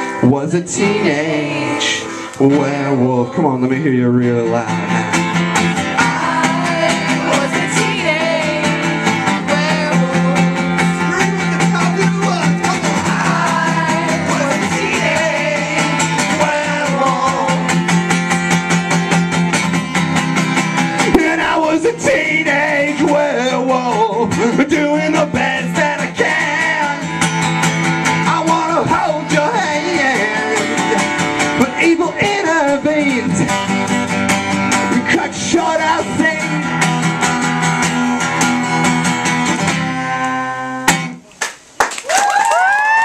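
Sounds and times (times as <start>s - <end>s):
acoustic guitar strummed: 0.0s - 41.3s
person singing: 6.0s - 17.8s.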